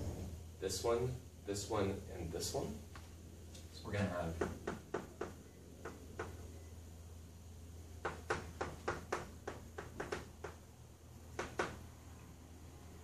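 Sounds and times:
low steady hum: 0.0s - 13.0s
chalk tapping on chalkboard: 4.4s - 6.4s, 8.0s - 10.6s, 11.3s - 11.8s.

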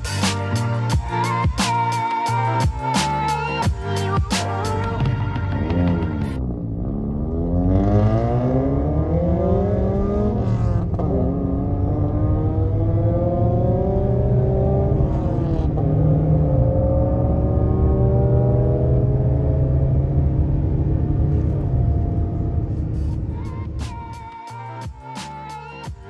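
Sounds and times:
road rumble: 0.0s - 25.9s
car engine accelerating: 4.8s - 23.8s.

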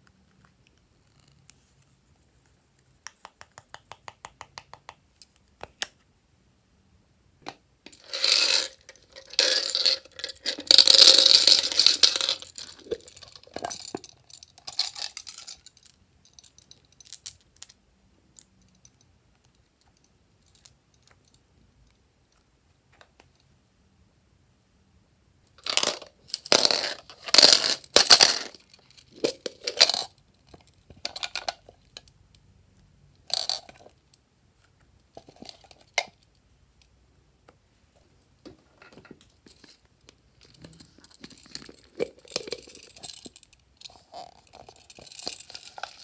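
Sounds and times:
beads rattling and scraping: 7.9s - 17.7s, 25.6s - 32.1s, 33.3s - 34.0s, 39.0s - 46.0s.

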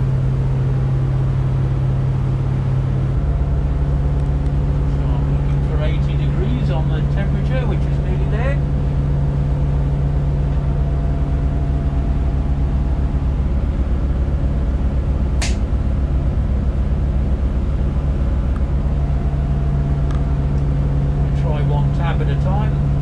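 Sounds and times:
boat diesel engine running: 0.0s - 23.0s
sharp click: 15.4s - 15.7s.

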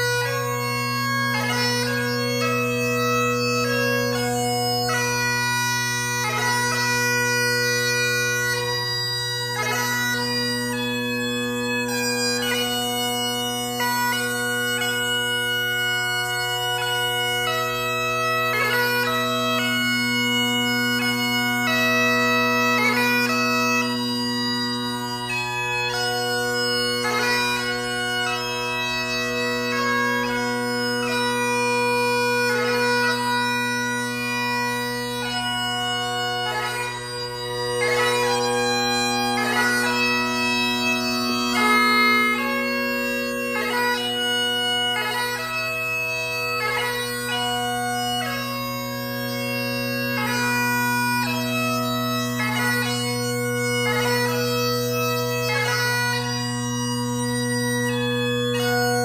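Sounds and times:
bagpipe chanter melody: 0.0s - 59.0s
bagpipe drone: 0.0s - 59.0s.

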